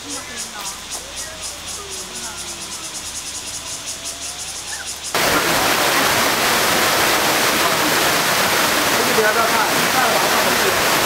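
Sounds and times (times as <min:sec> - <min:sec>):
high-pitched insect chorus: 0:00.0 - 0:07.6
stream rushing over rocks: 0:05.1 - 0:11.0.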